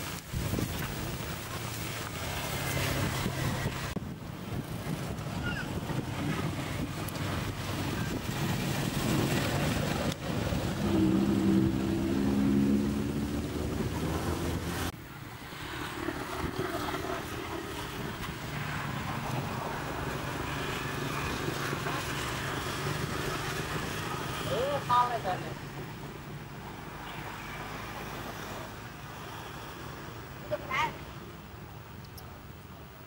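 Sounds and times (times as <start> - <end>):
engine drone: 0.0 - 25.5
steady engine rumble: 0.0 - 27.1.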